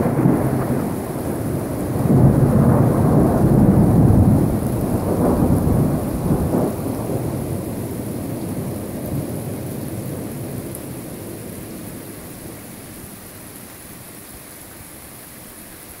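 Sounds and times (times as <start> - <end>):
thunder rumbling: 0.0 - 12.3
steady rain falling: 0.0 - 16.0.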